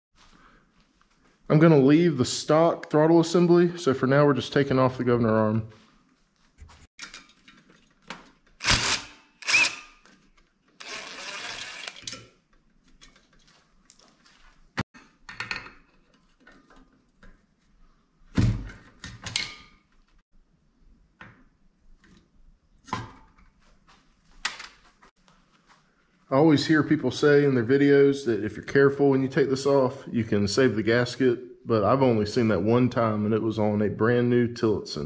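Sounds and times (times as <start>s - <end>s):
impact driver running: 8.6s - 9.9s, 10.8s - 12.0s.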